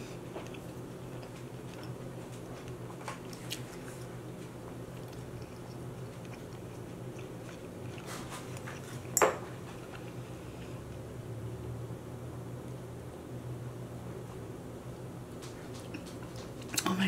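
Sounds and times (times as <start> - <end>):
steady low hum: 0.0 - 17.0
chewing food: 0.1 - 11.0, 15.4 - 17.0.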